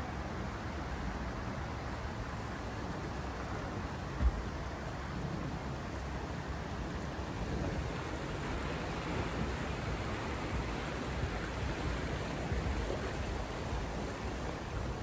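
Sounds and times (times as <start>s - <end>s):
stream rushing over stones: 0.0s - 15.0s
low thump: 4.2s - 4.5s.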